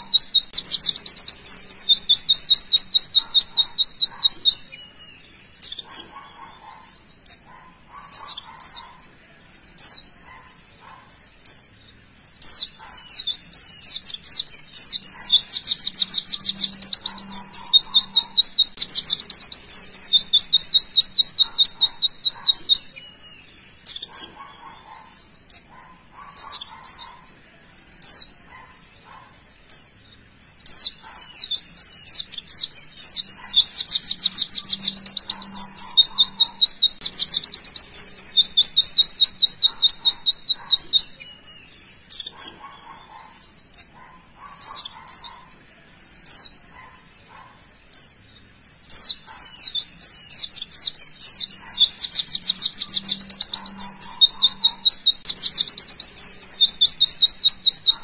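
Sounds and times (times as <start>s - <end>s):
sharp bird chirps: 0.0s - 58.0s.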